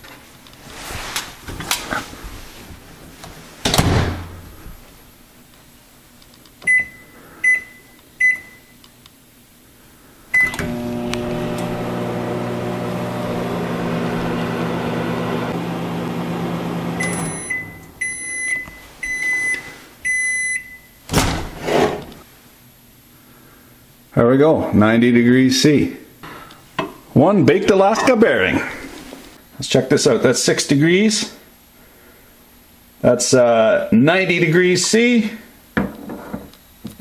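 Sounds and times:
microwave beeps: 6.6 - 8.8, 10.3 - 11.3, 16.9 - 21.0
microwave humming: 10.3 - 19.4.

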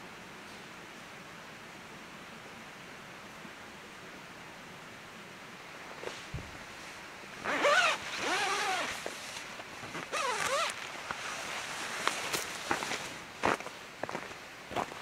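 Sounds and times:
tent zipper pulled: 7.4 - 13.1.

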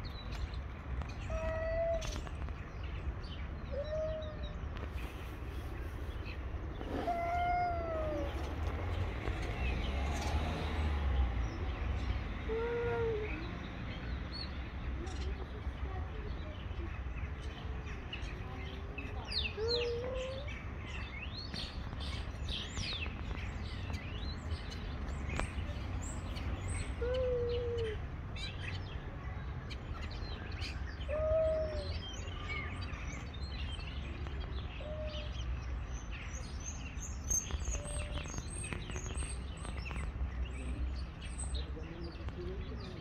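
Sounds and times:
small birds chirping: 0.0 - 43.0
cats yowling: 1.2 - 2.2, 3.7 - 4.6, 6.8 - 8.5, 19.6 - 20.6, 31.1 - 32.0.

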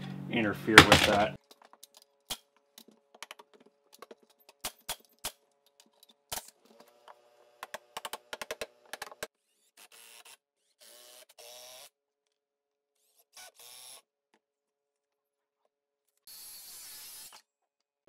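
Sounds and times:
nailer clicks and knocks: 0.8 - 1.3.

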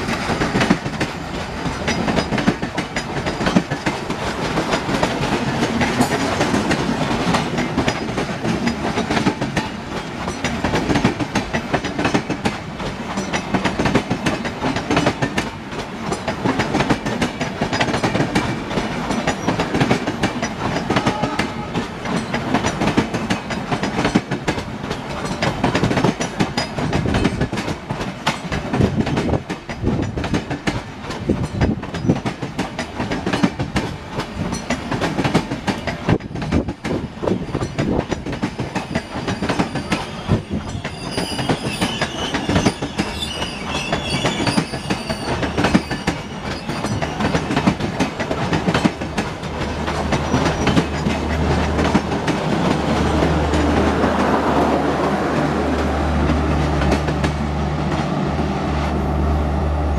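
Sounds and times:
train wheels clicking on rail joints: 0.0 - 59.0
high wheel squeal: 38.8 - 47.7.

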